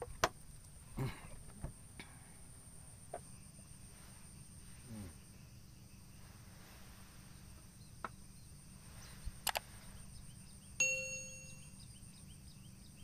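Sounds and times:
faint low background noise: 0.0s - 13.0s
bright bell-like ding: 10.8s - 11.8s.

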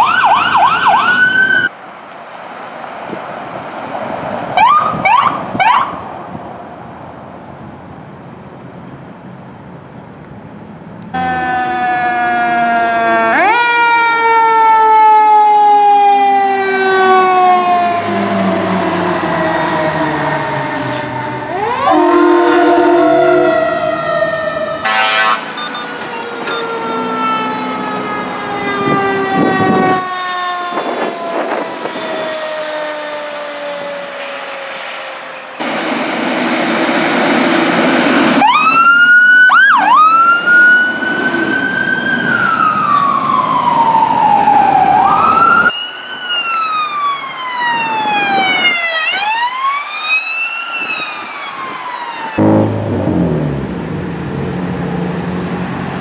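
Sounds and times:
siren winding down: 0.0s - 1.7s, 11.2s - 35.9s, 37.6s - 54.9s
sirens wailing and yelping: 0.0s - 1.7s, 4.5s - 6.1s, 11.2s - 35.9s, 37.6s - 56.0s
loud rush of noise: 34.1s - 38.7s, 52.3s - 56.0s.

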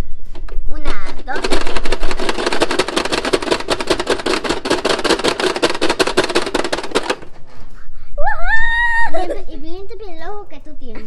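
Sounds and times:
toy clicking rapidly: 0.9s - 7.4s.

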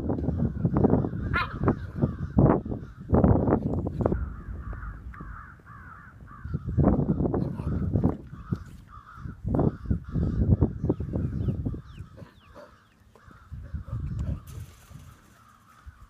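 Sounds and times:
puppies barking: 1.3s - 1.9s.

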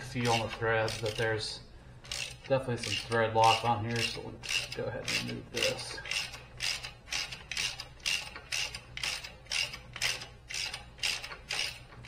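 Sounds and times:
socket ratchet clicking: 0.1s - 1.3s, 2.0s - 12.0s.

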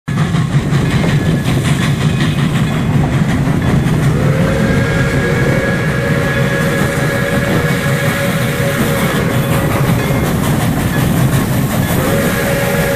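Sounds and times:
steam locomotive rumbling: 0.1s - 12.9s
steam whistle blast: 4.1s - 10.3s, 11.9s - 12.9s.

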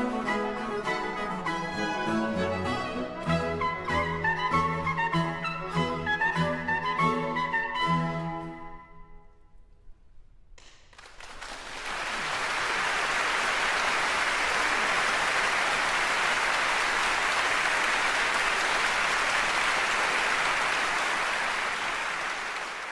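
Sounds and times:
audience applauding: 10.6s - 22.9s.

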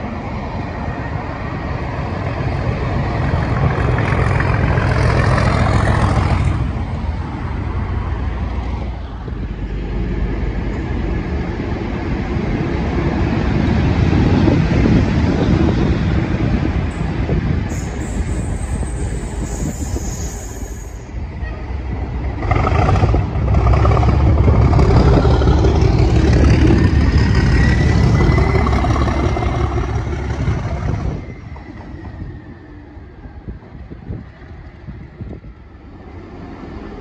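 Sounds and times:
diesel locomotive passing: 0.0s - 37.0s
wheels on rails: 13.1s - 37.0s
thin high whistle: 17.7s - 21.1s.

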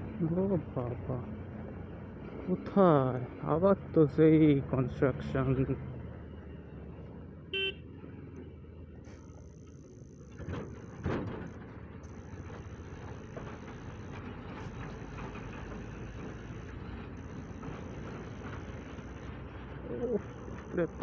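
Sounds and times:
motorcycle engine riding: 8.4s - 21.0s
loud bursts of noise: 9.1s - 21.0s.

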